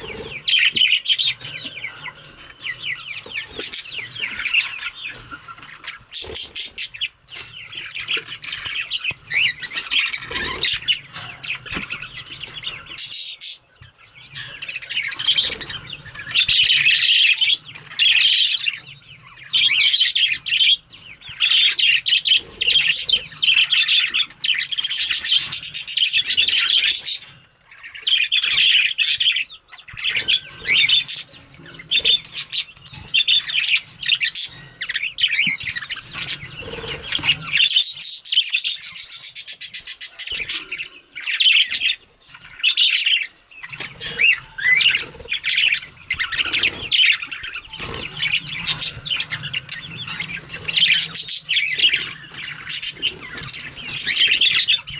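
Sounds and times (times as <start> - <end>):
budgerigars chattering and warbling: 0.0 - 54.9.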